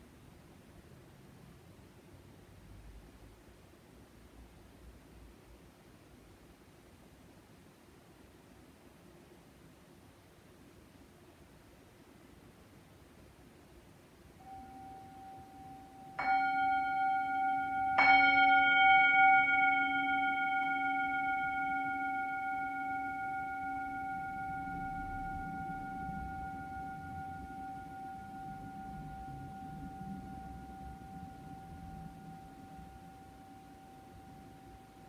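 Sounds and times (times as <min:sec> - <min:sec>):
singing bowl ringing: 0:14.4 - 0:35.0.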